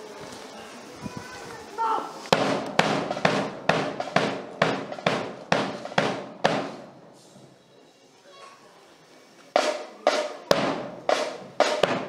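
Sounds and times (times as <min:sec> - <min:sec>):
loud drum beats: 0:02.3 - 0:07.0, 0:09.6 - 0:12.0.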